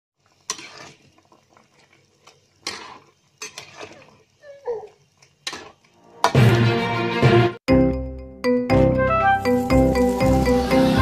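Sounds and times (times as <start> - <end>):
spatula scraping wok: 0.2 - 4.6.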